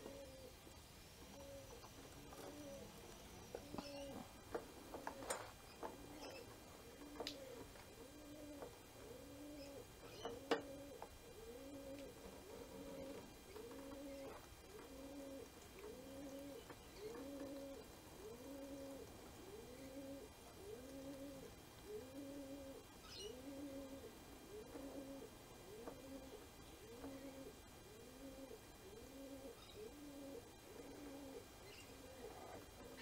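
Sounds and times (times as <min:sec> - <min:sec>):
bird cooing: 0:00.0 - 0:33.0.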